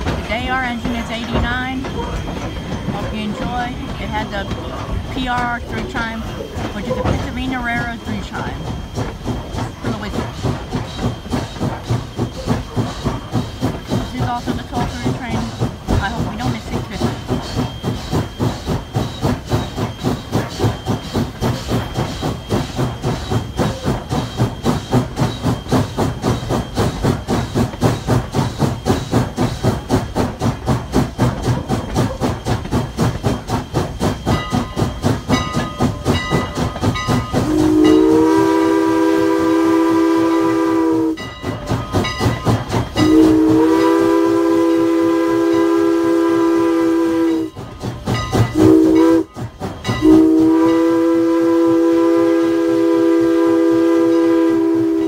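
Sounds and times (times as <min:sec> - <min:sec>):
steam locomotive exhaust beats: 0:00.0 - 0:55.0
three-chime train whistle: 0:37.4 - 0:41.3, 0:43.0 - 0:47.6, 0:48.5 - 0:49.3, 0:49.9 - 0:55.0.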